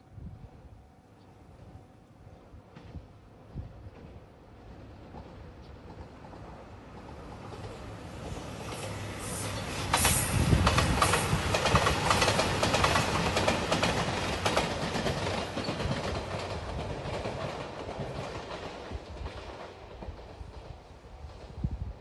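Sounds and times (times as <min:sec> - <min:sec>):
diesel train passing: 0:00.4 - 0:22.0
wheels clicking over rail joints: 0:09.9 - 0:20.7.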